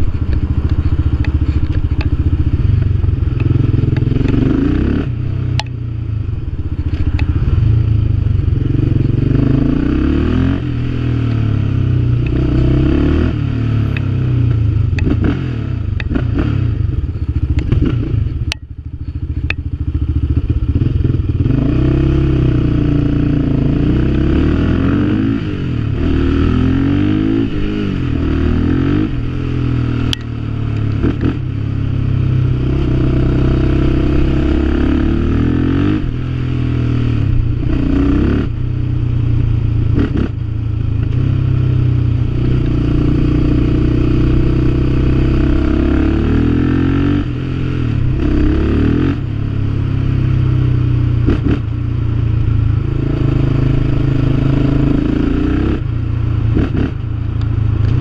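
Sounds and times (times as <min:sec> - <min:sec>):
quad engine revving: 0:03.3 - 0:05.7, 0:08.6 - 0:14.0, 0:32.6 - 0:38.6, 0:42.4 - 0:49.3, 0:53.0 - 0:55.9.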